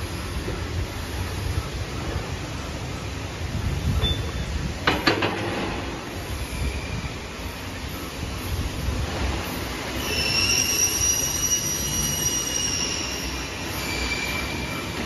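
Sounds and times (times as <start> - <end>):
high-pitched squealing whine: 5.5 - 15.0.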